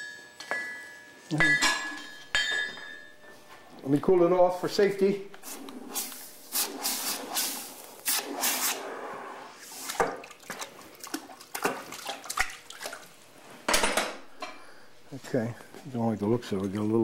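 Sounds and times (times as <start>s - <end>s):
hot steel hissing in water: 5.4s - 10.0s.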